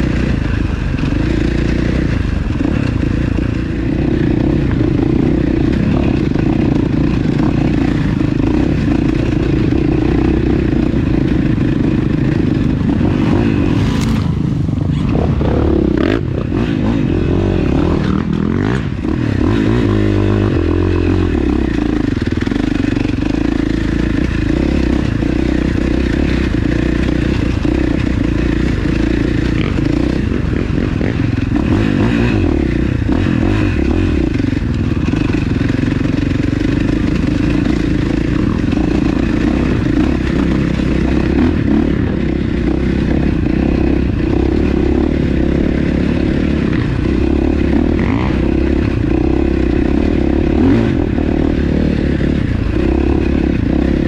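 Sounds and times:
atv engine running loudly: 0.0 - 54.0.

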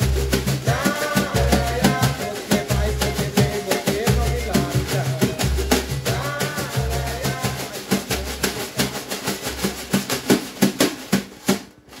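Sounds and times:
bass notes: 0.0 - 8.8
brushes on snare drum: 0.0 - 12.0.

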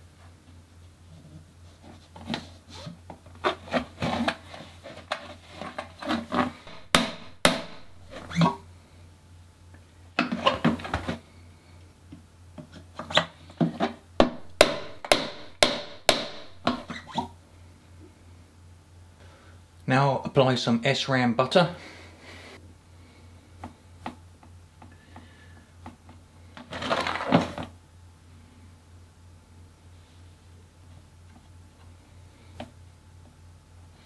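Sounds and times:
mallet tapping metal tool: 6.7 - 8.1, 14.2 - 16.9.

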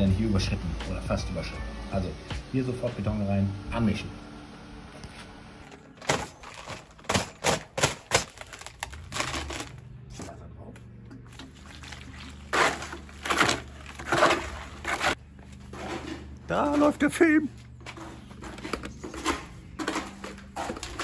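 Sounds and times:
concrete mixing in bucket knocks: 11.3 - 17.0, 17.9 - 21.0
trowel scraping concrete: 12.3 - 17.0.

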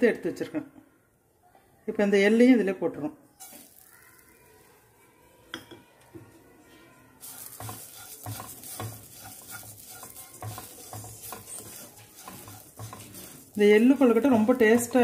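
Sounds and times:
light sizzle: 3.3 - 5.0, 7.2 - 15.0
spatula scraping a pan: 7.2 - 15.0.

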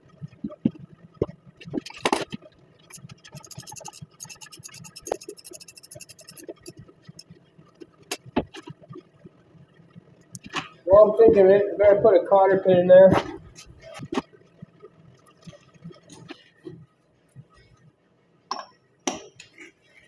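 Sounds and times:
ratchet wrench clicking: 2.9 - 6.8.

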